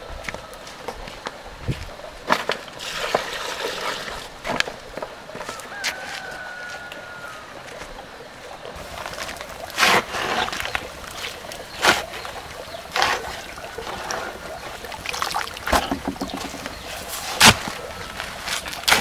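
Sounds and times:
shovel scraping wet cement: 9.2 - 10.8, 12.9 - 14.4, 17.0 - 19.0.

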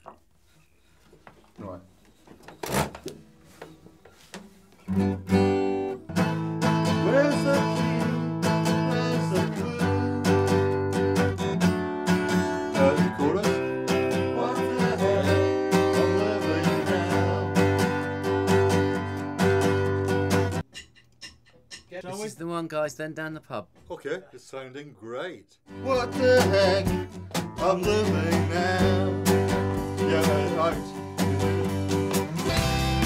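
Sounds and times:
acoustic guitars playing: 3.5 - 21.0, 25.7 - 33.0.

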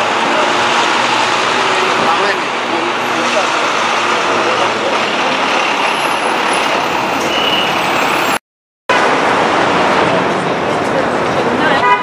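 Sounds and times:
tyres on road: 0.0 - 12.0
vehicle engines: 0.0 - 12.0
brief high tone: 5.9 - 8.4.

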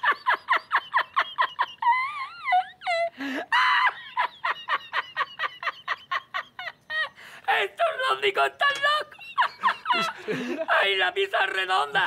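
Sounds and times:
man laughing hard: 0.0 - 7.2, 8.3 - 10.8.

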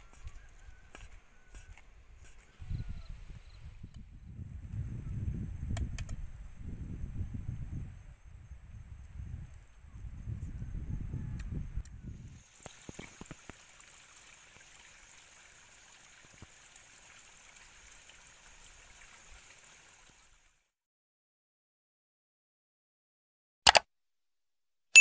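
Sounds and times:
water splashing in a stream: 12.3 - 20.6.

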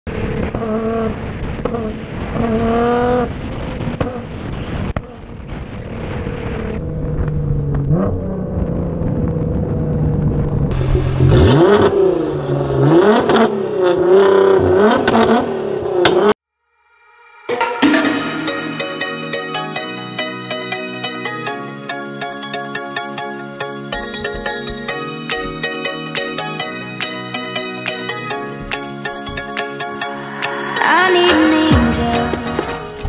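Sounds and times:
car engine accelerating and revving: 0.1 - 3.4, 5.9 - 16.4.

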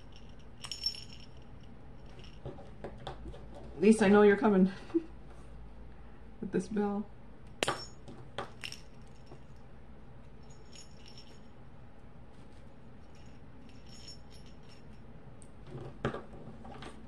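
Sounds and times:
keychain bell jingling: 0.0 - 2.4, 8.6 - 9.6, 10.4 - 11.6, 13.0 - 15.0.

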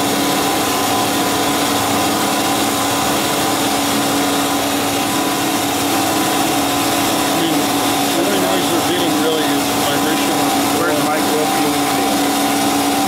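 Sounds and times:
bandsaw cutting steel bar: 3.1 - 13.0.

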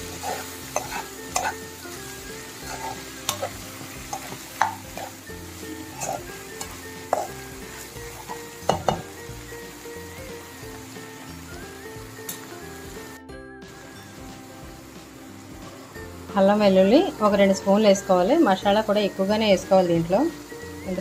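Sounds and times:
spatula scraping and knocking pan: 0.0 - 9.2
food sizzling in a pan: 0.0 - 21.0.

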